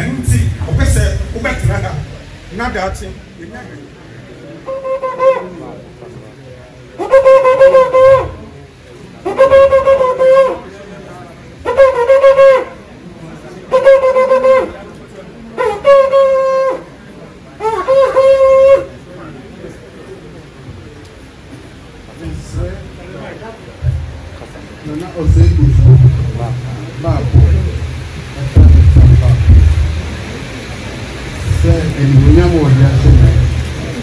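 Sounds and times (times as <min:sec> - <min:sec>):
horn blasts: 0:04.6 - 0:05.7, 0:07.0 - 0:08.6, 0:09.3 - 0:10.6, 0:11.6 - 0:12.8, 0:13.7 - 0:14.8, 0:15.6 - 0:16.9, 0:17.6 - 0:18.9.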